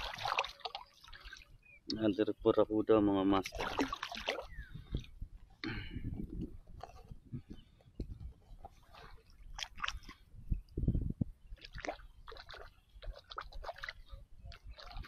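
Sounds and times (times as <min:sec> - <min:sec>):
sea water sloshing around wading: 0:00.0 - 0:01.6, 0:03.4 - 0:05.1, 0:08.6 - 0:10.3, 0:11.6 - 0:15.0.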